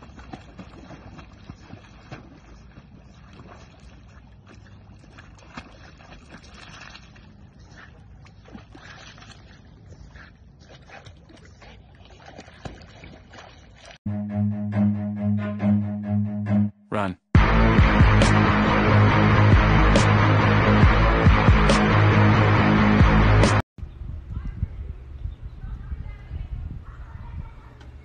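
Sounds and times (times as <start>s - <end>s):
water sloshing and splashing: 0.0s - 14.0s.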